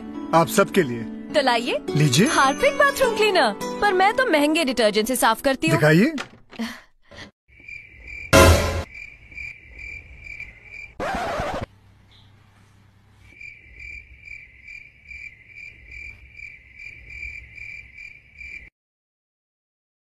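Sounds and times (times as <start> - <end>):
cricket chirping: 7.5 - 11.0, 13.3 - 18.7.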